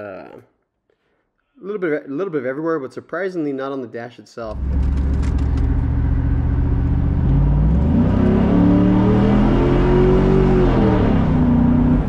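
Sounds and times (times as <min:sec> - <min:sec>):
car engine revving: 0:04.5 - 0:12.0.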